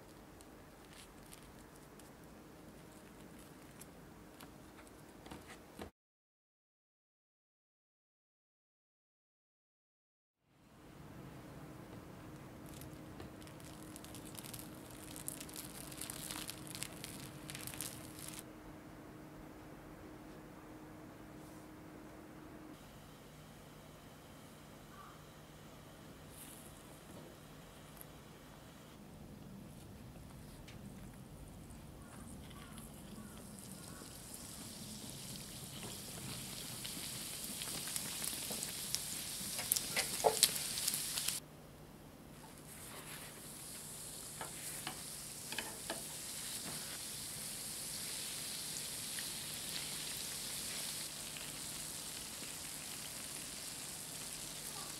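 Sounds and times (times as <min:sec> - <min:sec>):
plastic cling wrap crinkling: 0:00.0 - 0:05.0, 0:12.6 - 0:18.4, 0:35.3 - 0:41.4
oil popping and crackling: 0:12.6 - 0:18.4, 0:32.5 - 0:41.4, 0:43.4 - 0:54.9
hot oil sizzling: 0:13.4 - 0:18.4, 0:33.2 - 0:41.4, 0:42.7 - 0:54.9.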